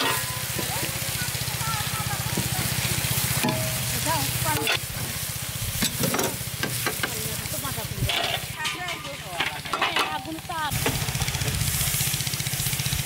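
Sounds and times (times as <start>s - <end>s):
metal ladle scraping pan: 0.0s - 0.7s, 3.3s - 4.9s, 5.8s - 7.2s, 7.9s - 10.5s
oil and onions sizzling: 0.0s - 13.0s.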